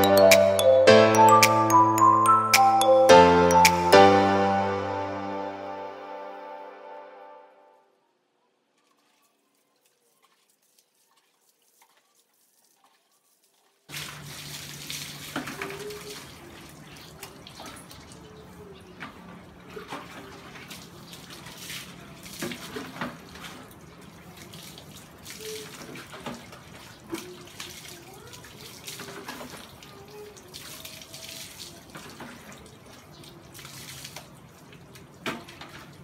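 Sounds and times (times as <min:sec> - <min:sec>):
water poured and splashing: 0:08.7 - 0:36.0
hose water rushing into bucket: 0:08.8 - 0:18.4, 0:19.1 - 0:36.0.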